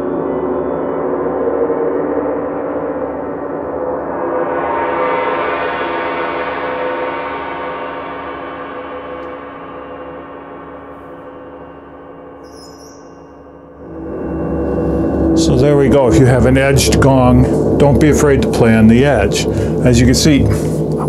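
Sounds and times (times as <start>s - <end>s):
gongs ringing softly: 8.9s - 20.6s.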